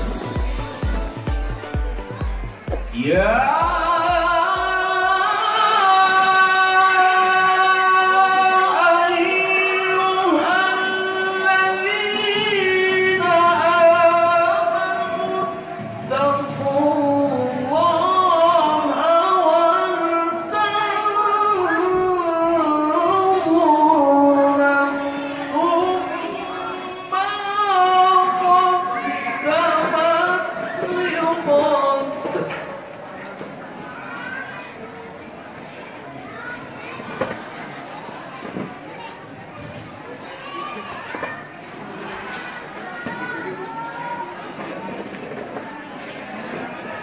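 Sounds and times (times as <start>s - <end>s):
man reciting melodically into microphone: 2.9s - 7.8s.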